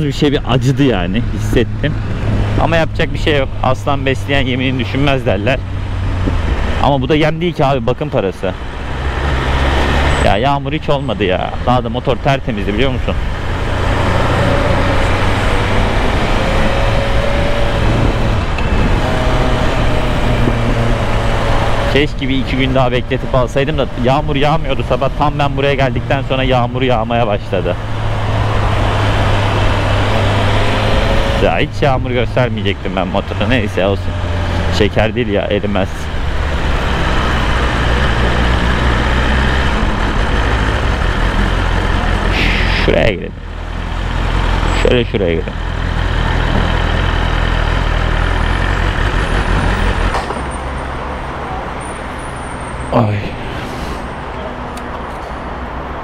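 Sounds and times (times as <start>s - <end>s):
wind and road noise: 0.0s - 56.0s
motorcycle engine accelerating: 12.7s - 52.2s
wind rush: 14.6s - 21.8s
motorcycle engine running: 43.4s - 50.4s.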